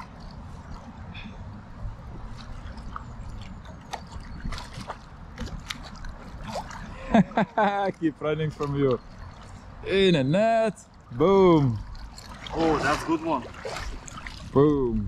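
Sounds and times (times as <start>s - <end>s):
river water sloshing and trickling: 0.0s - 15.0s
fish splashing at surface: 2.4s - 7.1s, 11.7s - 14.5s.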